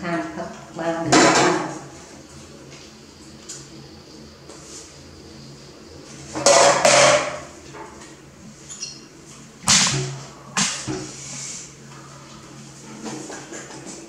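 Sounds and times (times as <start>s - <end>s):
faint hum: 0.0s - 14.0s
knocks and clatter of bottles: 6.4s - 7.4s.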